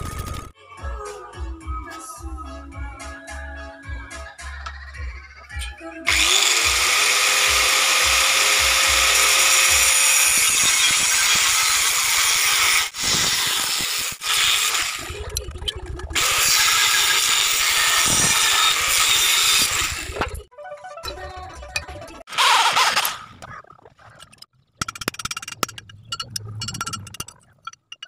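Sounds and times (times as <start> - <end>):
angle grinder cutting steel: 6.1 - 15.1, 16.2 - 20.2.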